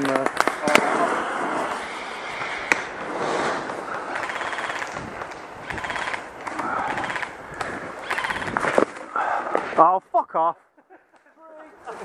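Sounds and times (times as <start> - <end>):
airsoft gun full-auto bursts: 5.7 - 6.2.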